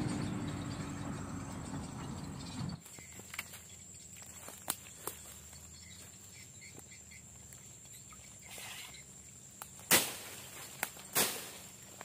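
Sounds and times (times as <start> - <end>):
insect drone: 0.0 - 12.0
faint bird chirps: 0.3 - 9.4.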